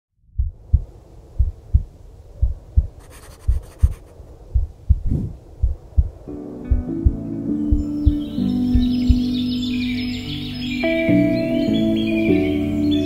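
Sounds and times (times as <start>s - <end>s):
heartbeat thumps: 0.3s - 9.4s
fast fine ticking: 1.4s - 6.1s
soft music notes: 6.2s - 13.0s.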